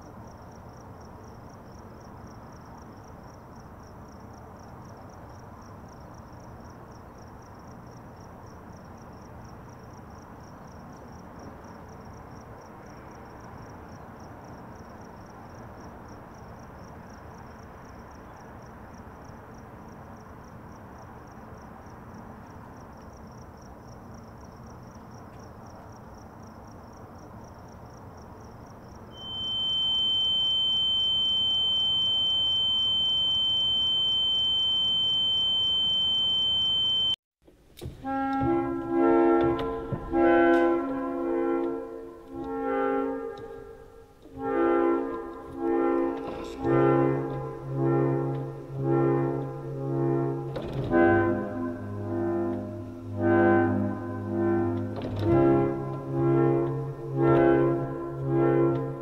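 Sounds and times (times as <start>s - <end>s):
crickets chirping: 0.0s - 37.2s
loud steady high tone: 29.1s - 37.2s, 38.2s - 59.0s.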